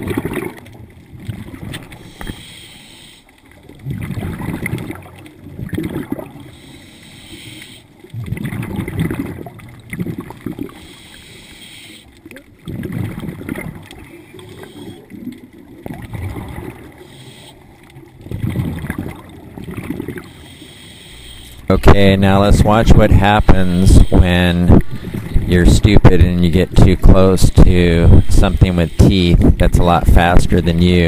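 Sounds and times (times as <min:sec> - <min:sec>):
exhaled bubbles gurgling: 0:00.0 - 0:31.0
scuba regulator breathing: 0:01.9 - 0:03.4, 0:06.4 - 0:08.0, 0:10.7 - 0:12.2, 0:14.3 - 0:15.1, 0:16.9 - 0:17.8, 0:20.2 - 0:21.7, 0:23.1 - 0:25.5, 0:27.8 - 0:29.6.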